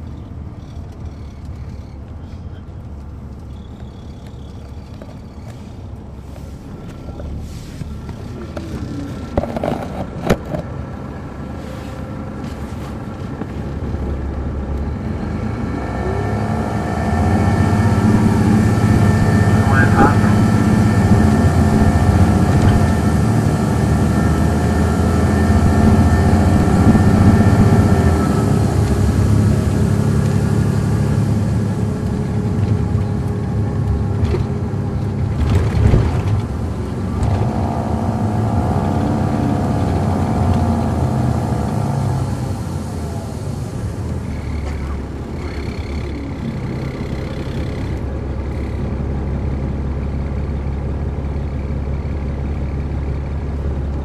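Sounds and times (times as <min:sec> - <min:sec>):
diesel bus engine: 0:00.0 - 0:54.0.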